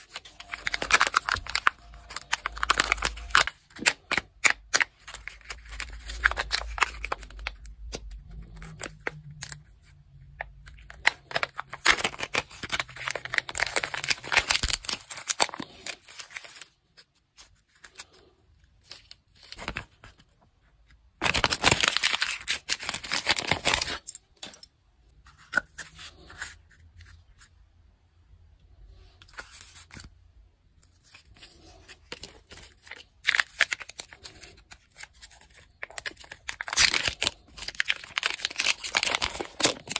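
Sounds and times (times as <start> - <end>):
foil wrappers crinkling and tearing: 0.0 - 9.6, 10.8 - 16.8, 21.2 - 24.2, 31.1 - 39.9.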